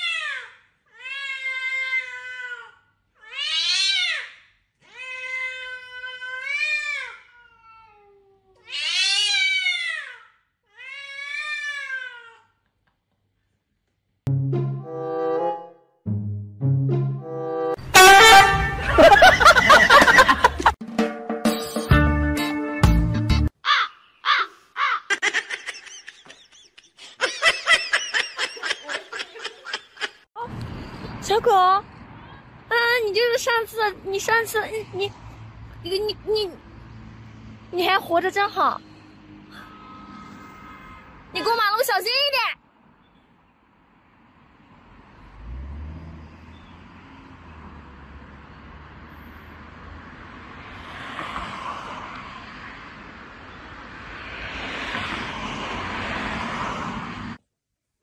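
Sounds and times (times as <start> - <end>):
cat meowing: 5.0 - 10.0
high-pitched squeaky laughter: 23.7 - 30.3.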